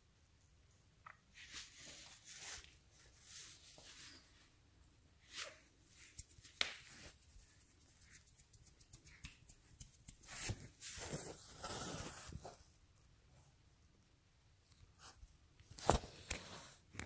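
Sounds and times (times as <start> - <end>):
fabric rustling on blanket: 10.3 - 12.6.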